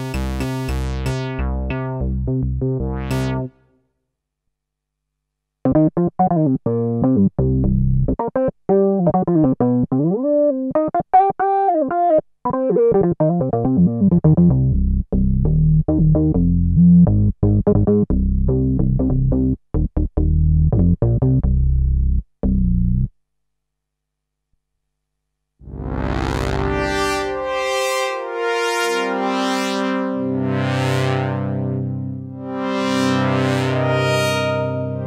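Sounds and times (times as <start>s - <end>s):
synthesizer funk riff: 0.0s - 3.5s, 25.6s - 35.0s.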